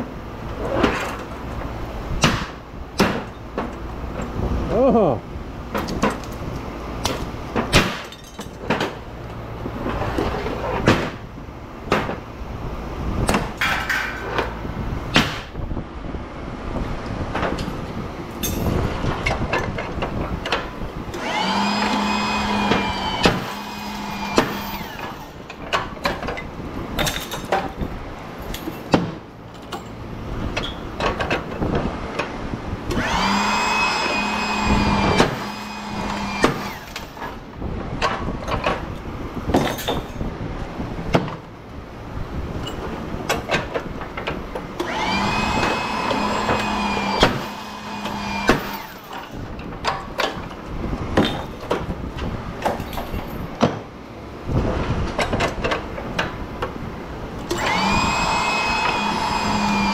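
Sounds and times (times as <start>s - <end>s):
sharp knocks and clatter: 0.7s - 4.4s, 5.7s - 6.4s, 7.0s - 9.0s, 9.8s - 11.3s, 11.9s - 12.3s, 28.5s - 30.0s
motor-driven tool spinning up: 21.1s - 25.3s, 32.9s - 37.2s, 44.8s - 49.2s, 57.5s - 59.9s.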